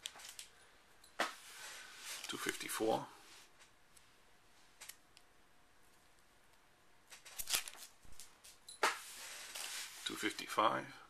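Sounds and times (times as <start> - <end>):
plastic sleeves crinkling: 7.1 - 10.4.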